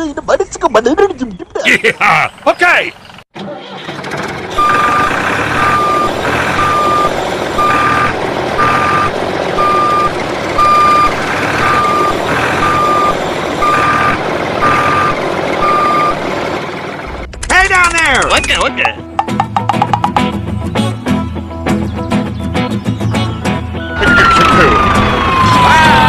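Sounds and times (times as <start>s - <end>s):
engine running: 1.8s - 22.5s
reversing alarm beeping: 4.5s - 16.2s.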